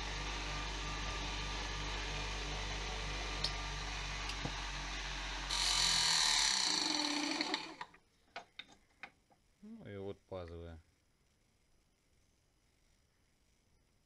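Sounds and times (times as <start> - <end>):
electric sharpener humming: 0.0 - 7.9
metal bit grinding on wheel: 5.5 - 7.9.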